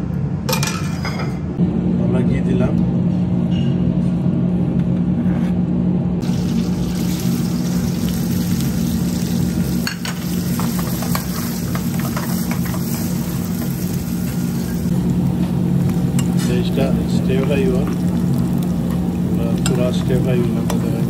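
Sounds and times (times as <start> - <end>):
onions sizzling in frying pan: 6.2 - 15.0, 15.7 - 21.0.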